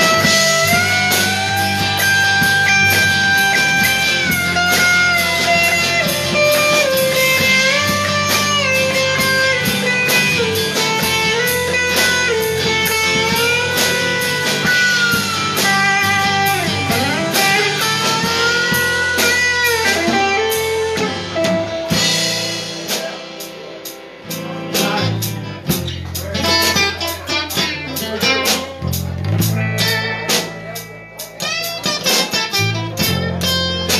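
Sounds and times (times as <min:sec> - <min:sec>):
drum kit: 0:00.0 - 0:33.9
electric bass: 0:00.0 - 0:33.9
electric guitar lead: 0:00.0 - 0:33.9.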